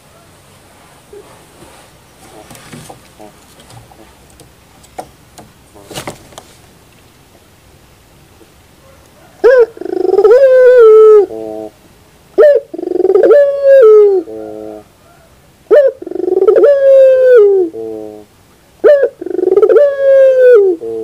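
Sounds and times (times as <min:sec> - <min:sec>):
faint knocks: 0:01.6 - 0:06.6
dove cooing: 0:02.2 - 0:04.5, 0:08.8 - 0:11.8, 0:12.4 - 0:21.0.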